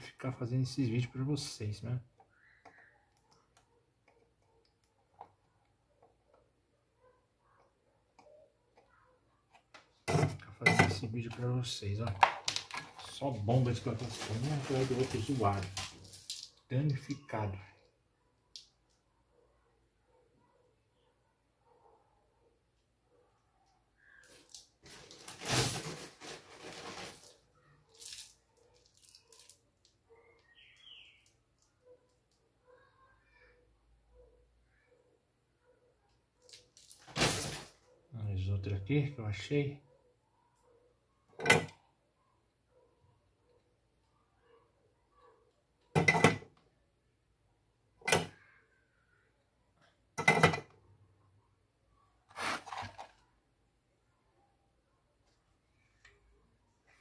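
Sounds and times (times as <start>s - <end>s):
rustling handling noise: 9.9s - 17.3s, 24.2s - 29.6s, 52.3s - 53.3s.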